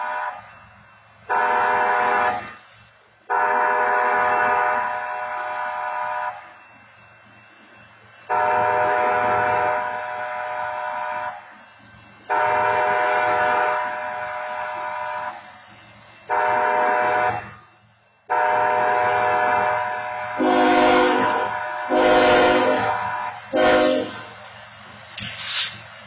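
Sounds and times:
deep train horn blasts: 1.3 - 2.6, 3.3 - 6.4, 8.3 - 11.5, 12.3 - 15.4, 16.3 - 17.6, 18.3 - 24.3
train horn chord: 3.3 - 6.4, 8.3 - 11.4, 12.3 - 15.4, 16.3 - 17.6, 18.3 - 24.3.

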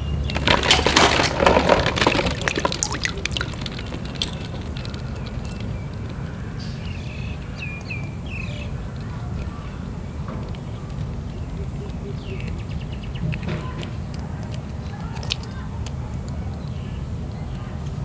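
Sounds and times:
plastic balls knocking together: 0.0 - 6.3, 13.2 - 16.4
water splashing: 0.2 - 5.9
water dripping: 0.2 - 8.4.

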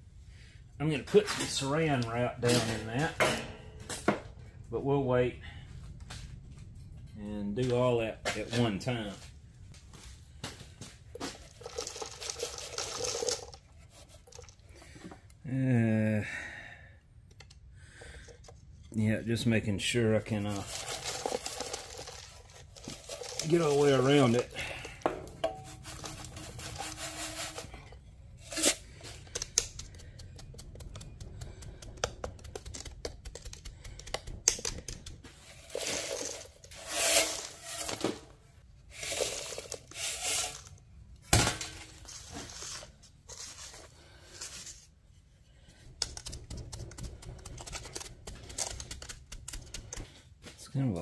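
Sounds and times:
scraping tapping and clicks: 29.0 - 37.4.

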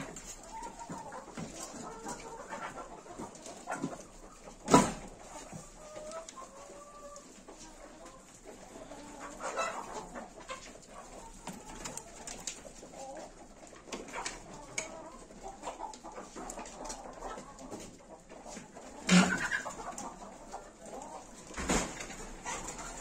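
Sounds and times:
birds cooing and clucking: 18.8 - 23.0.

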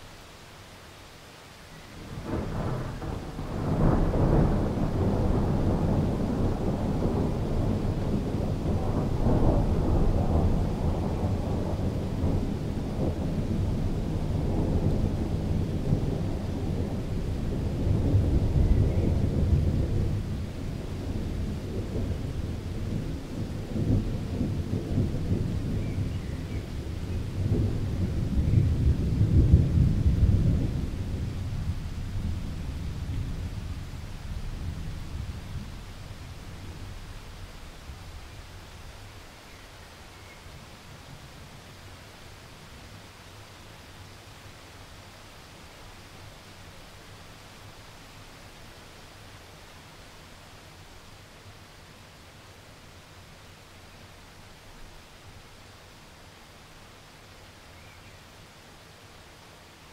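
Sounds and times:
thunder rumbling: 2.0 - 38.2.

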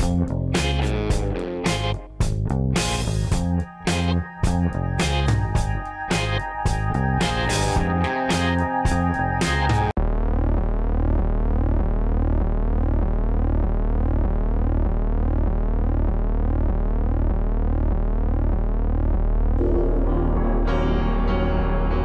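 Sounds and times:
guitar music: 0.0 - 9.9, 19.6 - 22.0
electronic music with synth sweeps: 0.0 - 22.0.

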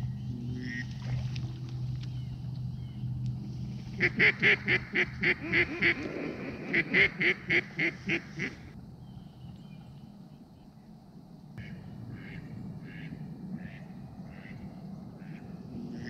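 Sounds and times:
duck quacking: 0.6 - 0.9, 4.0 - 8.7, 11.6 - 14.6, 15.2 - 16.0.

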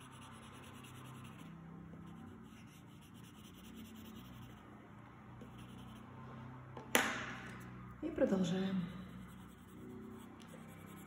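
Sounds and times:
pencil scratching on paper: 0.0 - 4.7, 5.3 - 6.2, 9.0 - 11.0.

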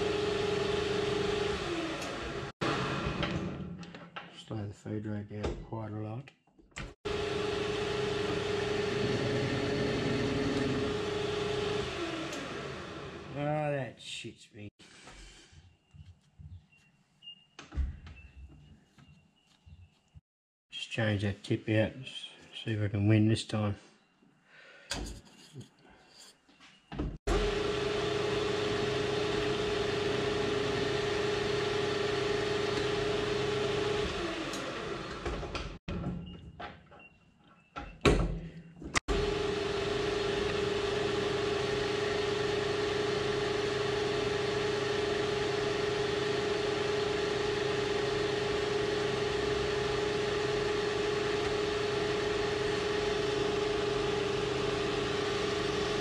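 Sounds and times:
metal lathe whining: 7.1 - 13.4, 27.3 - 35.5, 39.1 - 56.0.

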